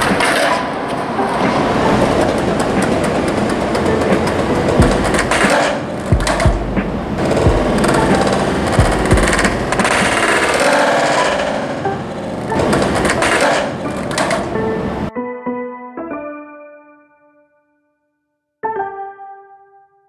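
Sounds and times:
skateboard wheels rolling on concrete: 0:00.0 - 0:15.1
skateboard knocks: 0:01.4 - 0:11.6, 0:12.4 - 0:14.6.

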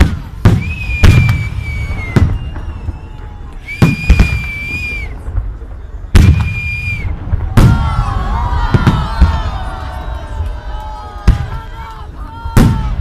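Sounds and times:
crowd voices: 0:00.0 - 0:13.0
fireworks booming: 0:00.0 - 0:13.0
high steady whistle: 0:00.4 - 0:07.3.

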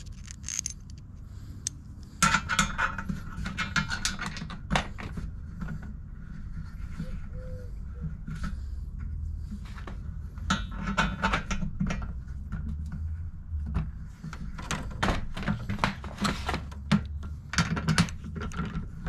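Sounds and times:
metal tools knocking and clinking: 0:00.0 - 0:01.0
steady low hum: 0:00.0 - 0:19.0.

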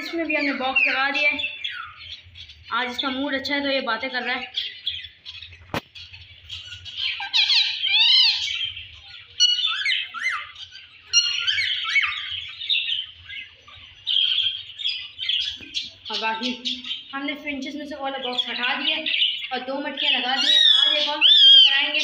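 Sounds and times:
parakeet chattering and squawking: 0:00.0 - 0:22.0.

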